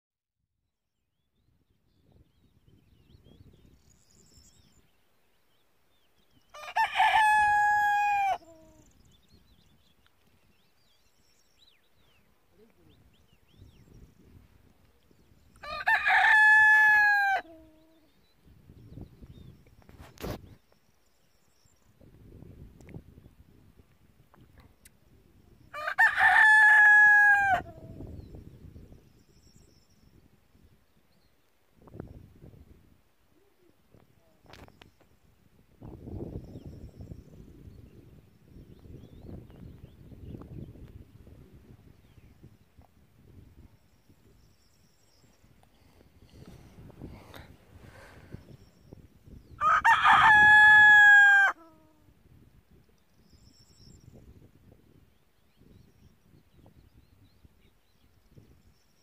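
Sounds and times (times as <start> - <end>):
rooster crowing: 6.5 - 8.8, 15.6 - 17.9, 25.7 - 27.8, 49.6 - 51.9.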